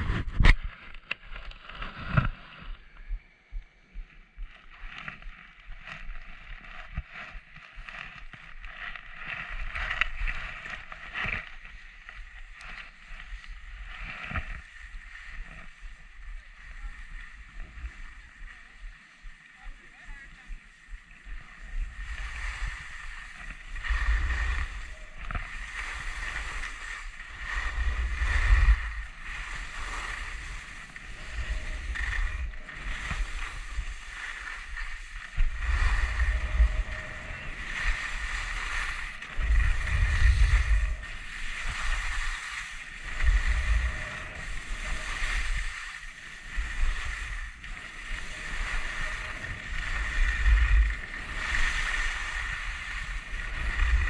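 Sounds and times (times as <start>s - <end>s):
wind buffeting microphone: 0.0s - 0.7s, 21.0s - 54.0s
skis scraping over snow: 4.6s - 54.0s.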